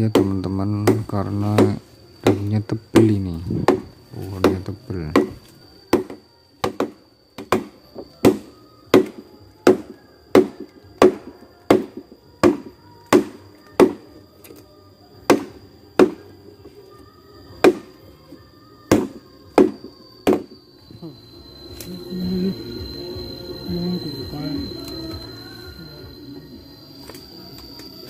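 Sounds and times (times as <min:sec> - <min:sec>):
blade chopping bamboo: 0:00.1 - 0:14.0, 0:15.3 - 0:16.2, 0:18.9 - 0:20.5.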